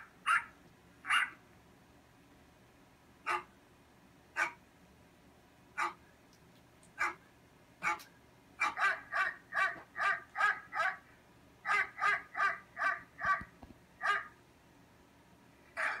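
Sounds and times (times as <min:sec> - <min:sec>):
dog barking: 0:00.3 - 0:00.5, 0:01.1 - 0:01.4, 0:03.3 - 0:03.5, 0:04.4 - 0:04.6, 0:05.8 - 0:06.0, 0:07.0 - 0:07.2, 0:07.8 - 0:11.0, 0:11.7 - 0:14.4, 0:15.8 - 0:16.0.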